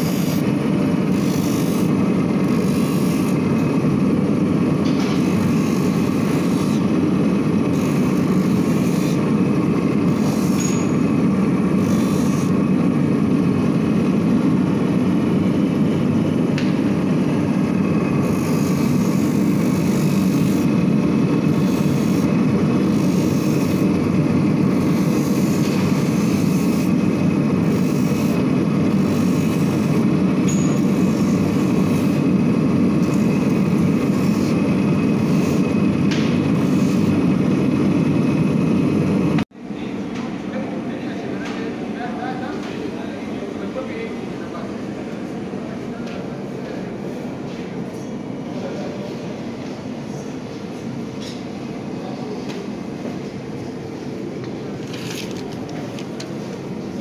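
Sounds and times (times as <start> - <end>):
abrasive wheel hissing: 0.0 - 3.5, 17.9 - 37.4
machine motor droning: 0.0 - 39.4.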